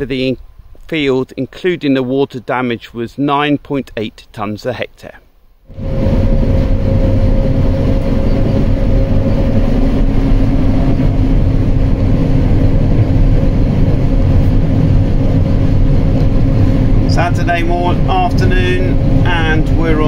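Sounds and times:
combine harvester drone: 5.7s - 20.0s.

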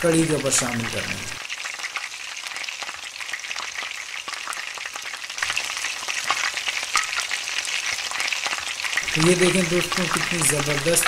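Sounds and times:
spices sizzling in hot oil: 0.0s - 11.0s.

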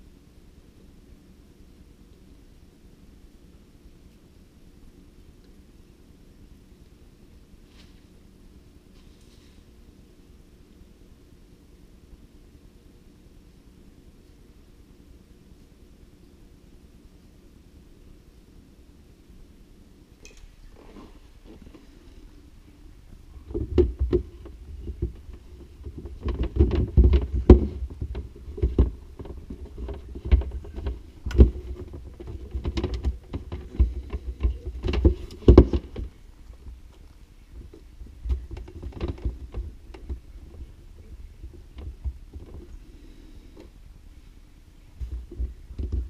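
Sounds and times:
plastic knocks and clunks: 23.4s - 36.8s, 37.6s - 40.8s, 41.4s - 42.8s, 45.0s - 46.0s.

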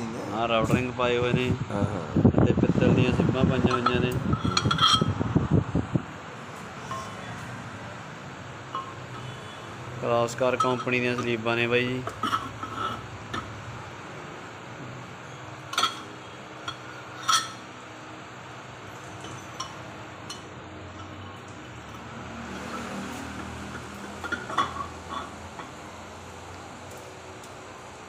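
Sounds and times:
steady background noise: 0.0s - 28.0s
metal liners clinking on engine block: 3.6s - 5.2s, 6.8s - 7.4s, 8.7s - 9.6s, 10.2s - 13.6s, 15.6s - 17.7s, 18.9s - 26.0s.

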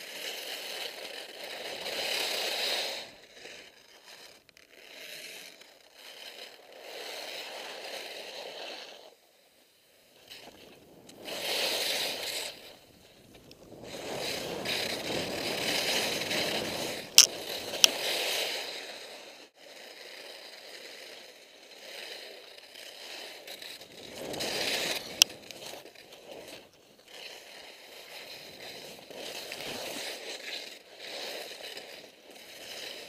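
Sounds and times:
skis scraping across snow: 0.0s - 33.0s
sharp clicks: 17.1s - 17.9s.

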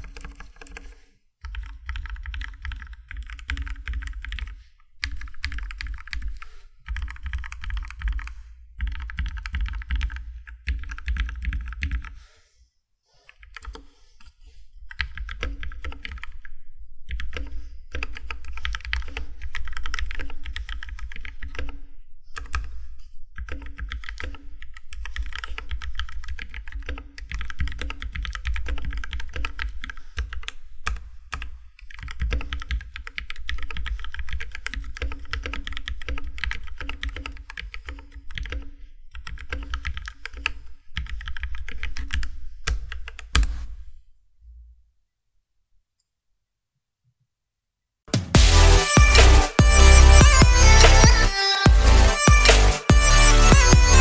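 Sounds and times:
mechanical keyboard typing: 0.0s - 12.1s, 13.3s - 13.9s, 14.9s - 16.4s, 17.1s - 21.8s, 23.4s - 43.5s.

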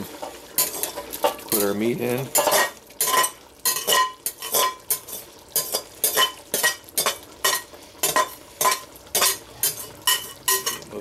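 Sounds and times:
metal spatula scraping glass bowl: 0.6s - 10.9s
glass bowl clinking: 0.6s - 11.0s.

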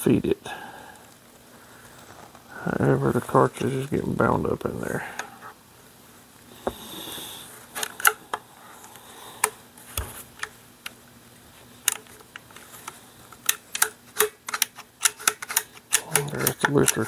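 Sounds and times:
rifle pump action clicking: 13.4s - 17.0s.

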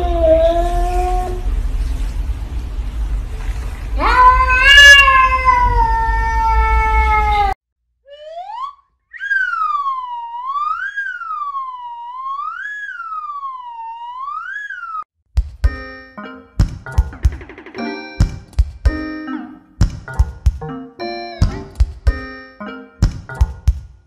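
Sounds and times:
cat yowling: 4.0s - 7.6s
wailing siren tone: 8.1s - 15.1s.

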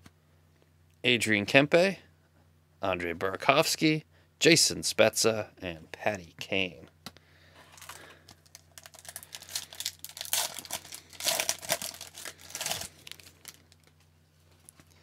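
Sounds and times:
foil wrapper crinkling and tearing: 7.7s - 14.0s.

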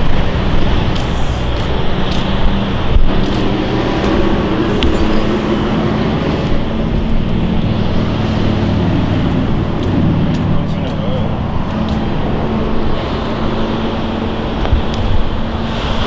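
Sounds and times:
car engine hum: 0.0s - 16.0s
road noise: 0.0s - 16.0s.

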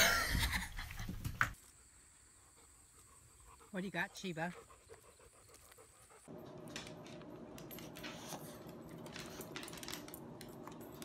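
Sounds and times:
low room hum: 4.9s - 11.0s.

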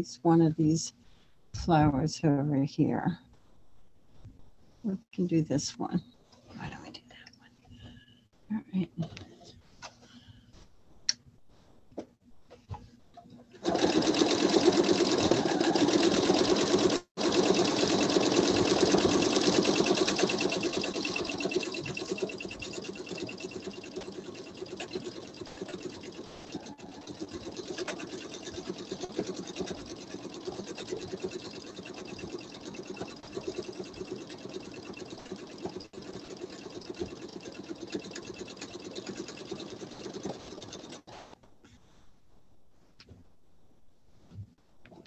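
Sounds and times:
sewing machine stitching fast: 13.6s - 41.3s.

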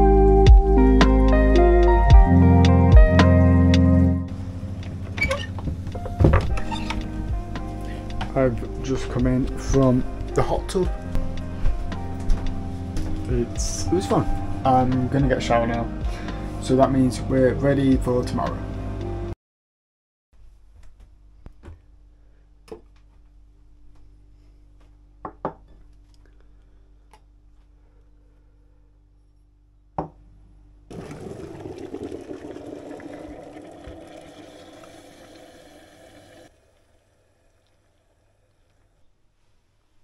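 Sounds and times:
hot water pouring into mugs: 30.9s - 38.7s.

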